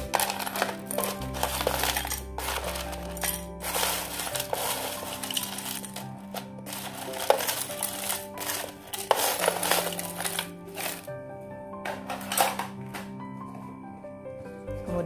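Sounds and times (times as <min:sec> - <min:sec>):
spoon scooping crushed ice: 0:00.0 - 0:11.1
background music: 0:00.0 - 0:15.0.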